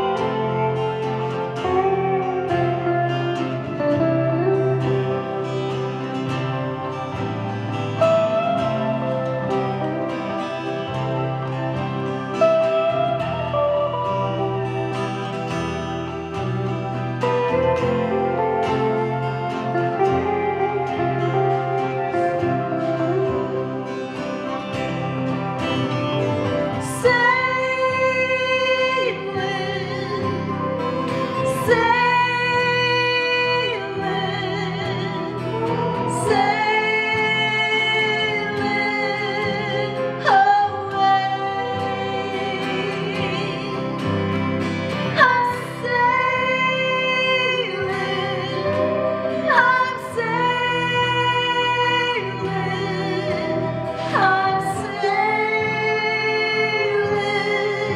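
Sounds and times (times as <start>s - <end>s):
acoustic guitar: 0.0s - 57.9s
woman singing slow song: 17.2s - 24.1s, 26.7s - 57.9s.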